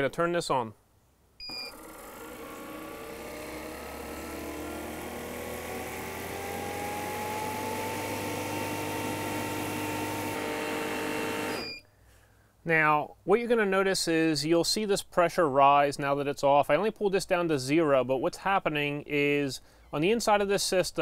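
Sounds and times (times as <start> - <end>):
short beep: 1.4 - 1.8, 11.6 - 11.9
compressor humming: 1.4 - 11.8.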